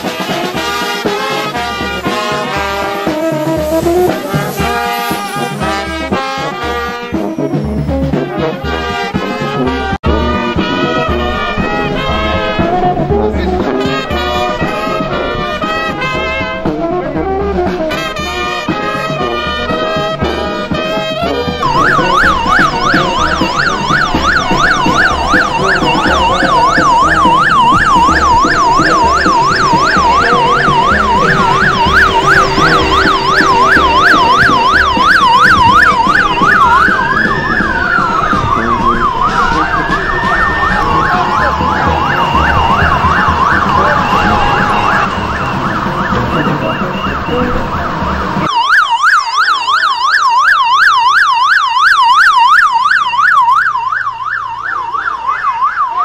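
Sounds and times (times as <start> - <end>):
siren yelping and wailing: 1.8 - 8.8, 9.4 - 20.1, 20.9 - 56.0.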